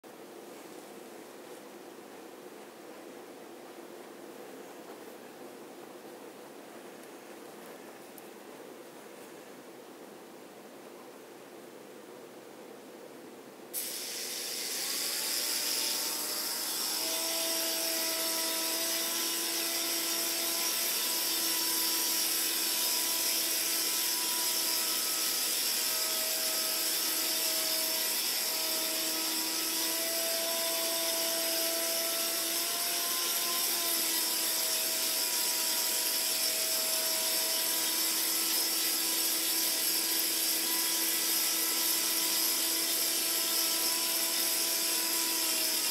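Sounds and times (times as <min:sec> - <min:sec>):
toy drone propellers whining: 0:13.8 - 0:45.9.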